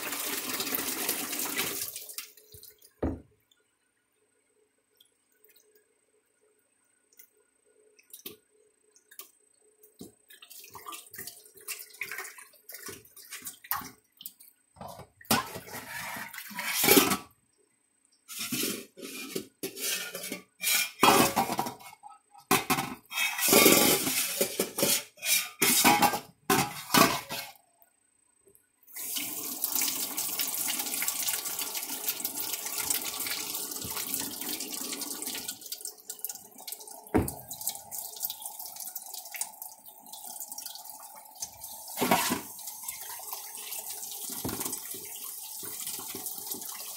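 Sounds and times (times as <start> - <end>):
tap running into sink: 3.0 - 3.2, 37.1 - 37.6, 44.4 - 44.9.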